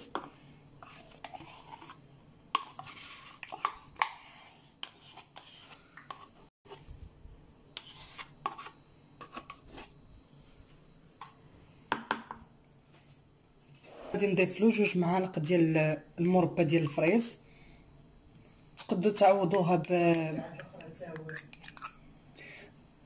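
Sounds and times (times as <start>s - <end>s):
spoon scraping plastic pot: 0.0s - 6.9s, 7.8s - 10.0s, 19.5s - 22.0s.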